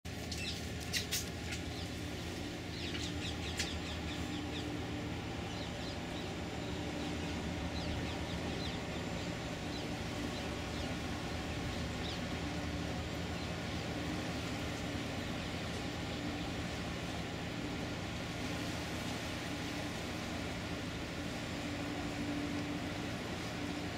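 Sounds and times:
ship engines humming: 0:00.1 - 0:23.9.

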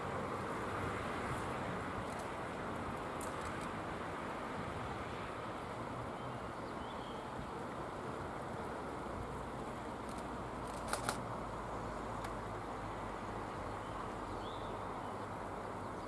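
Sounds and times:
sharp clicks: 0:10.0 - 0:11.2.

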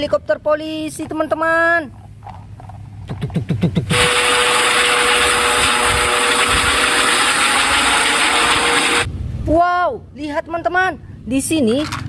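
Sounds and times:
helicopter rotor and turbine noise: 0:03.6 - 0:09.1
turbine whine: 0:03.7 - 0:09.1.

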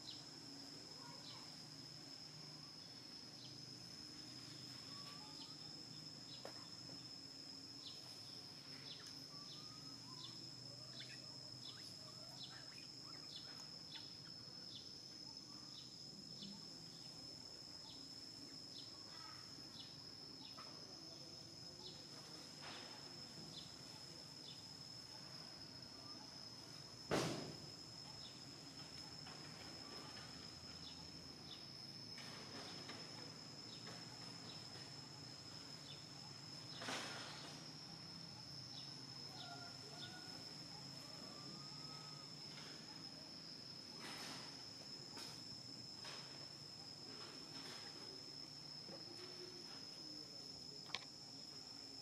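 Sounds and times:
insects droning: 0:00.0 - 0:52.0
faint ticks: 0:50.8 - 0:51.1.

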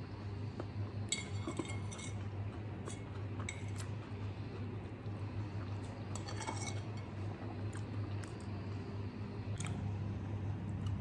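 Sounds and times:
steady low hum: 0:00.0 - 0:11.0
fork clinking on plate: 0:06.1 - 0:07.1.

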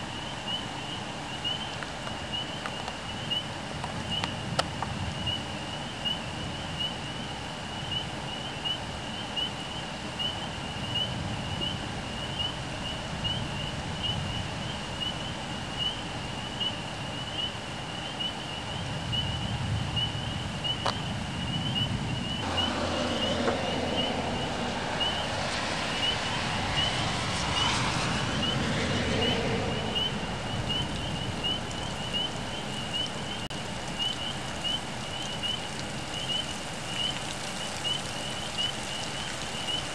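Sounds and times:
wind and rain hiss: 0:00.0 - 0:39.9
low thunder rumble: 0:19.2 - 0:32.6
rushing noise: 0:22.4 - 0:32.2.

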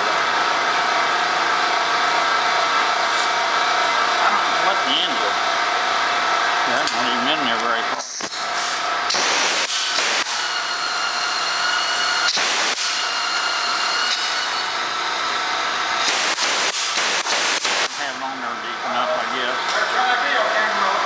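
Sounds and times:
rivet gun air hissing: 0:08.2 - 0:10.5, 0:16.0 - 0:18.0
short air blasts: 0:08.2 - 0:10.5, 0:12.3 - 0:13.2, 0:16.0 - 0:18.2.

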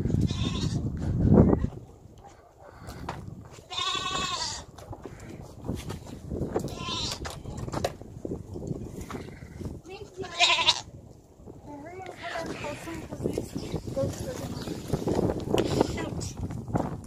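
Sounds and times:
goats bleating: 0:03.7 - 0:04.7, 0:06.7 - 0:07.2, 0:10.0 - 0:10.9.

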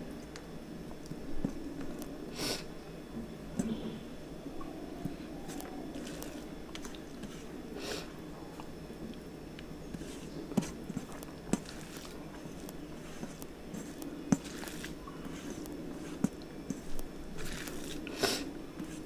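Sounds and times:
fingers mixing rice on steel plate: 0:05.0 - 0:07.7, 0:09.6 - 0:19.0
chewing: 0:05.4 - 0:07.6.

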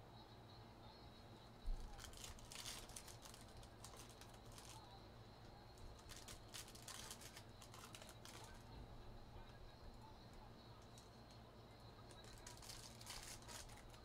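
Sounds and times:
foil wrapper crinkling and tearing: 0:01.8 - 0:04.8, 0:05.9 - 0:08.6, 0:12.1 - 0:14.0.

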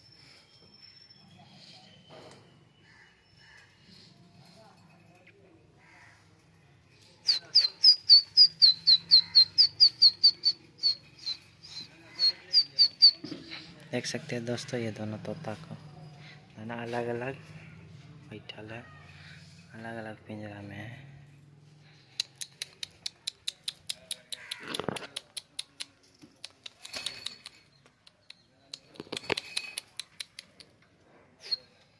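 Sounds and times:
parakeet calling: 0:07.6 - 0:10.6
parakeet crisp clicks: 0:22.1 - 0:30.7.

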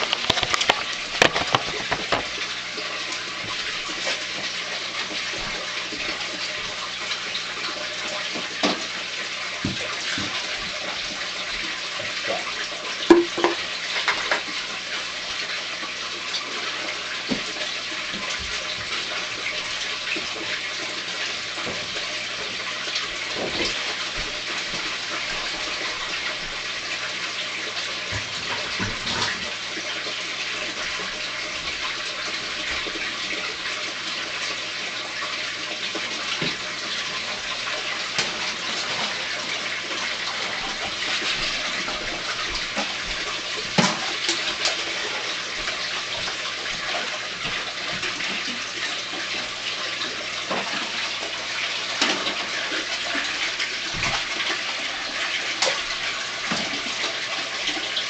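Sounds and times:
water splashing into aquarium: 0:00.0 - 0:58.0.

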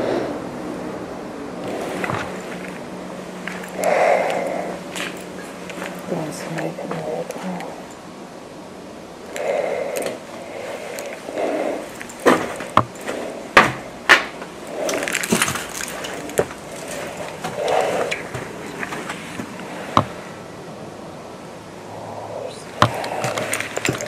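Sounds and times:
breathing through a respirator: 0:00.0 - 0:00.5, 0:03.7 - 0:05.1, 0:09.3 - 0:13.4, 0:16.8 - 0:18.4, 0:21.9 - 0:24.0
wood cracking and snapping: 0:12.0 - 0:19.0.

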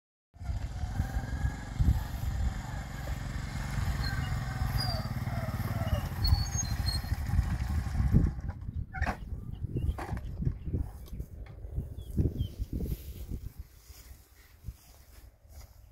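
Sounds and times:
motorcycle engine running: 0:00.4 - 0:08.7.

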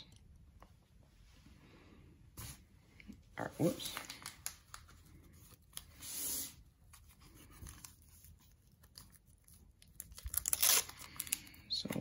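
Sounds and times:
wrapper rustling and crackling: 0:03.6 - 0:05.9, 0:07.0 - 0:12.0
wrapper tearing: 0:07.7 - 0:11.6.

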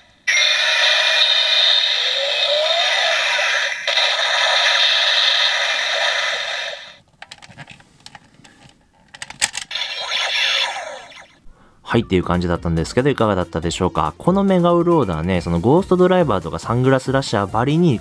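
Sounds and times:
toy sound effect through small speaker: 0:00.3 - 0:07.0, 0:09.7 - 0:11.4
plastic clicks and rattles: 0:07.1 - 0:09.7.

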